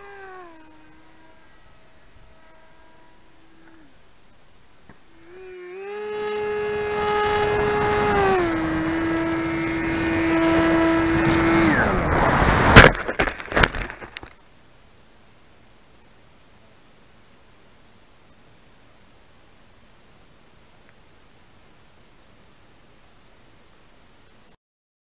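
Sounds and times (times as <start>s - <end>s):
electric motor whine: 0.0s - 12.9s
model aircraft crashing: 4.8s - 14.4s
wind rush: 6.3s - 14.1s.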